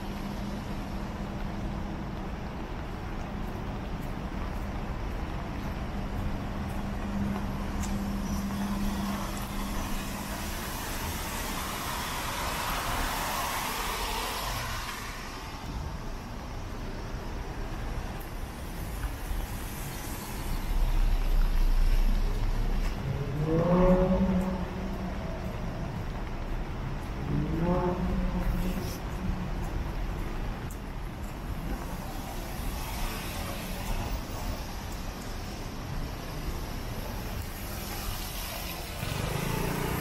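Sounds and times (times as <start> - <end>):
heavy vehicle rumble: 0.0 - 40.0
car tyre hiss on wet road: 8.0 - 16.2, 17.6 - 22.8, 31.5 - 40.0
engine pulling away: 38.8 - 40.0.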